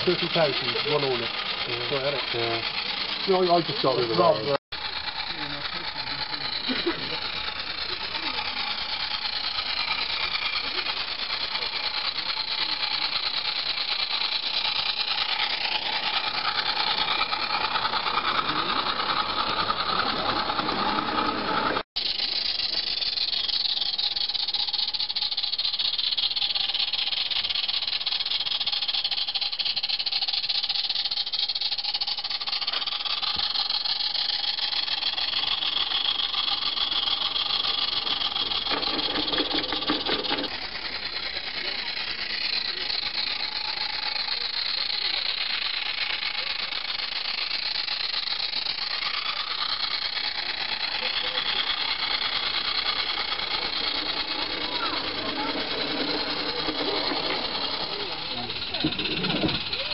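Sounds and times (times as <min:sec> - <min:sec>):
steam hissing: 0:00.0 - 0:59.9
toy train rattling: 0:00.0 - 0:59.9
faint voices: 0:50.5 - 0:59.9.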